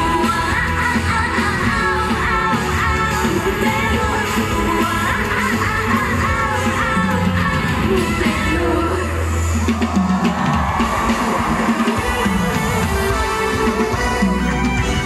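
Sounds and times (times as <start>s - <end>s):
drum beat: 9.6s - 15.0s.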